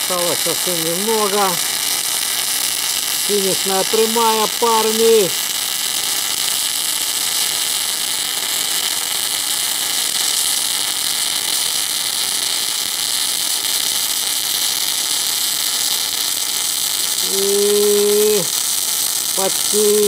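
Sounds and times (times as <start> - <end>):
welding arc crackling hiss: 0.0 - 20.0.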